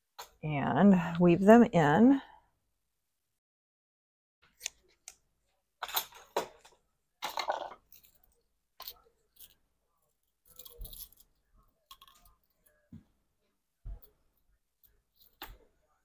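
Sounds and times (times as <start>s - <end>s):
clicks and rustles of handling: 4.4s - 13.0s.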